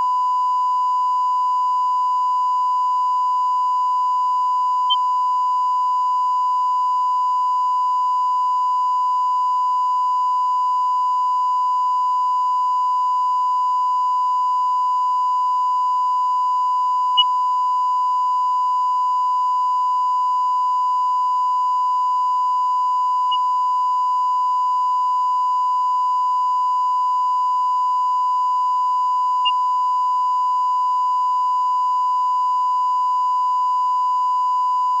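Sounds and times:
electronic test tone: 8.7 - 35.0.

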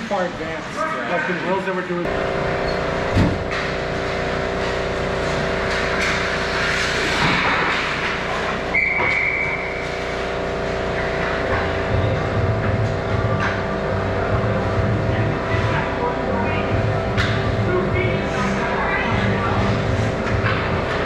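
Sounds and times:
steady multi-tone hum: 0.0 - 21.0
skates and sticks on ice: 5.4 - 10.8.

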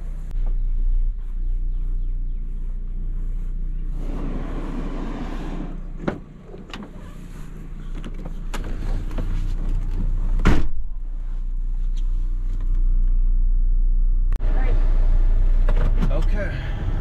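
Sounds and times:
low engine hum: 0.0 - 17.0
car door slamming: 8.0 - 11.0.

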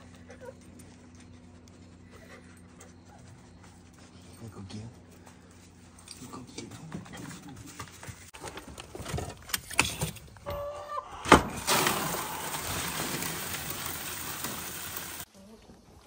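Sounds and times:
grain pouring into plastic bucket: 11.6 - 15.3.

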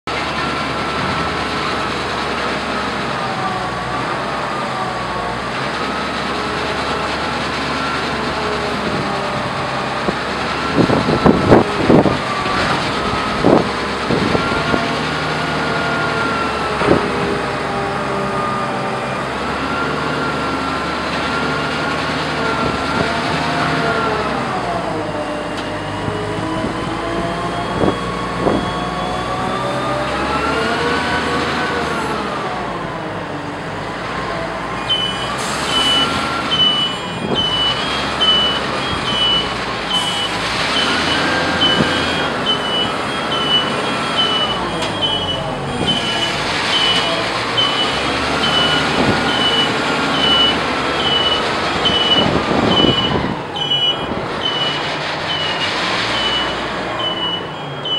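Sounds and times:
diesel engine under hydraulic load: 0.1 - 57.9
high warning beeper: 34.8 - 55.6, 56.2 - 57.9.

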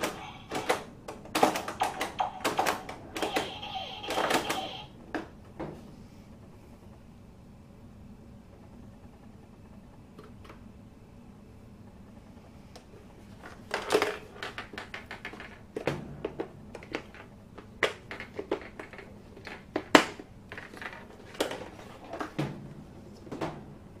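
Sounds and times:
plastic toy clicks and knocks: 0.0 - 4.7, 13.7 - 22.3.

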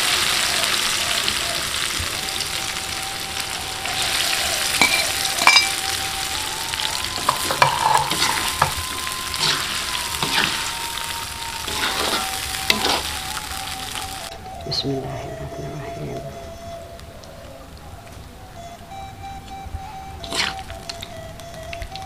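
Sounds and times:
shrimp sizzling in a pan: 0.0 - 14.3, 20.2 - 21.0.

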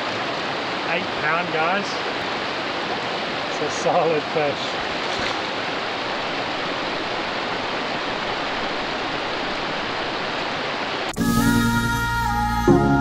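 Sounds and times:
river water over stones: 0.0 - 11.1
music: 11.1 - 13.0.

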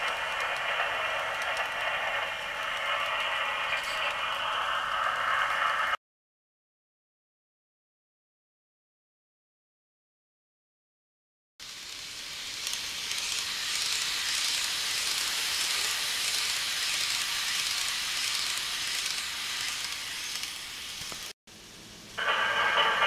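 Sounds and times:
model train running: 0.0 - 6.0, 11.6 - 23.0.

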